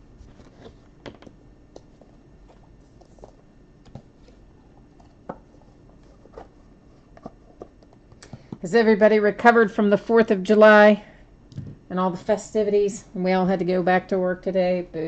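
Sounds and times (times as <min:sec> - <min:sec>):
low room hum: 0:00.0 - 0:15.0
faint clicks and taps: 0:07.1 - 0:08.6.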